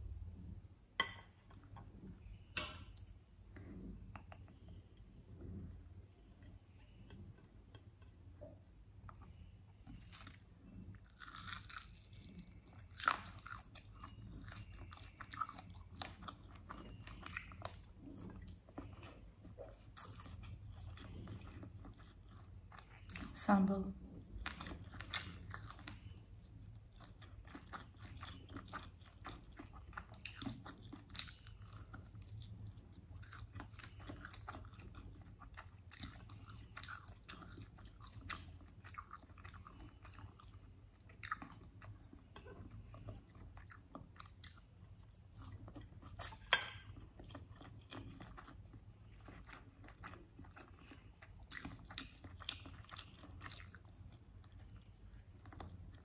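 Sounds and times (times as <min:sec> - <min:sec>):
low steady hum: 0:00.0 - 0:56.0
chewing and biting: 0:11.0 - 0:23.3, 0:24.4 - 0:56.0.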